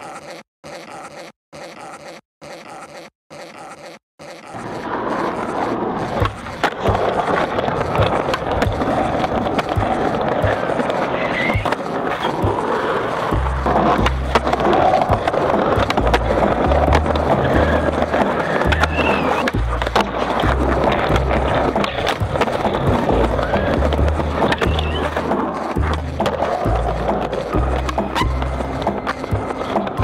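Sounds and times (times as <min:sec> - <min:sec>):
skateboard clacks: 0:04.6 - 0:30.0
skateboard wheels rolling on pavement: 0:04.6 - 0:30.0
music with pulsing bass: 0:13.4 - 0:19.0, 0:19.6 - 0:30.0.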